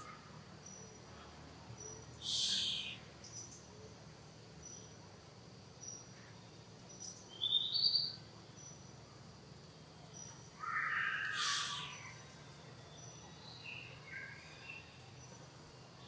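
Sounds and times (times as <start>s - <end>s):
faint chirps: 0.0s - 5.0s, 10.0s - 16.0s
young monkey squealing: 10.9s - 11.9s.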